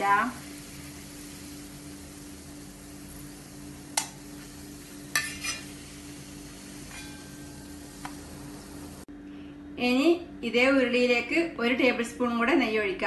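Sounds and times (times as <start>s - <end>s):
hot fat sizzling: 0.0s - 9.1s
spoon scraping metal pan: 5.1s - 5.8s, 6.8s - 7.7s.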